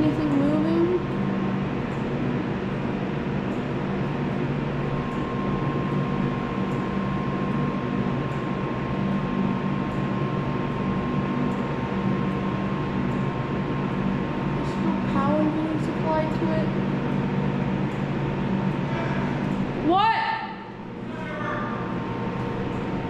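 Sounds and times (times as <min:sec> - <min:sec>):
machinery hum: 0:00.0 - 0:23.0.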